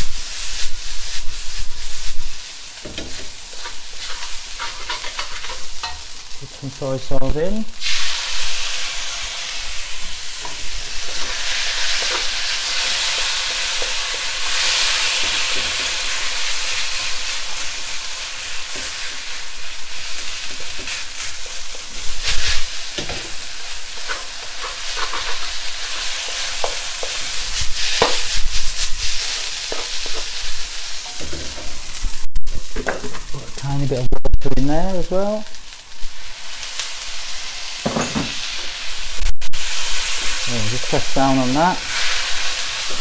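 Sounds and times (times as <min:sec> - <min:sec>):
rice sizzling in a wok: 0:00.0 - 0:33.9, 0:34.6 - 0:43.0
wooden spatula scraping a wok: 0:02.9 - 0:06.1, 0:20.4 - 0:32.0.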